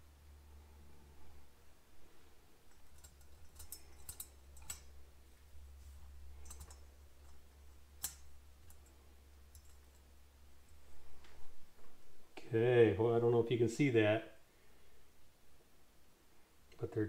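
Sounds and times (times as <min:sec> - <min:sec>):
small steel parts clicking: 0:02.7 - 0:05.1, 0:06.3 - 0:10.1.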